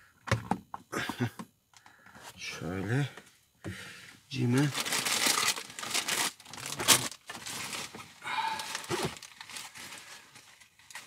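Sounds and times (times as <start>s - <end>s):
rustling and shuffling: 2.0s - 11.0s.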